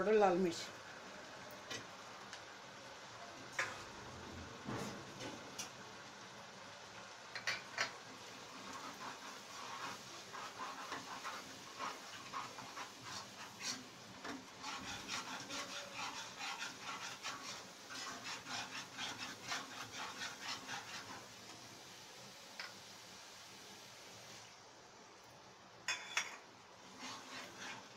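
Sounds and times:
spoon scraping a pan: 0:03.5 - 0:04.0, 0:07.3 - 0:21.6, 0:25.9 - 0:27.9.

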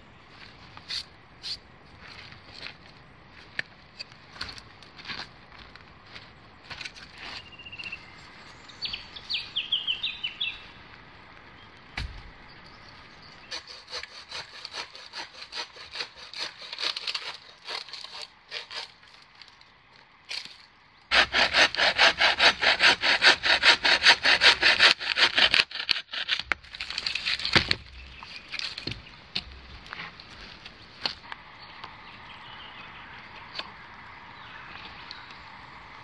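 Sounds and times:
hand saw cutting wood: 0:13.5 - 0:19.0, 0:21.1 - 0:27.6.

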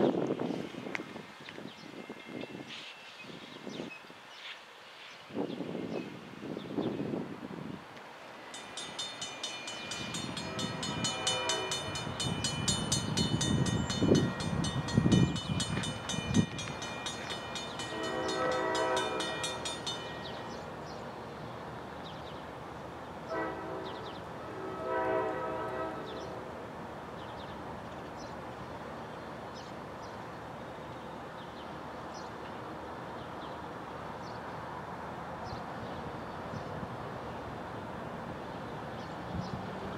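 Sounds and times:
wind buffeting microphone: 0:00.0 - 0:04.0, 0:05.3 - 0:08.0, 0:08.8 - 0:20.5
distant train horn: 0:08.5 - 0:15.3, 0:16.5 - 0:20.7, 0:23.2 - 0:26.7.

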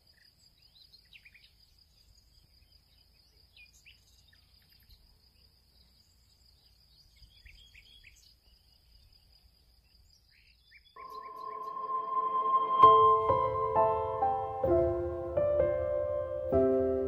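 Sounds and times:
short bird chirps: 0:10.7 - 0:13.3
music: 0:11.0 - 0:17.0.

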